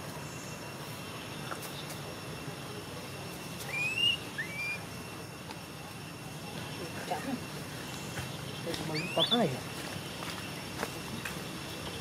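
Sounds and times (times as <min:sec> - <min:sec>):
outdoor background hiss: 0:00.0 - 0:12.0
whistled animal calls: 0:03.6 - 0:05.0, 0:08.8 - 0:09.6.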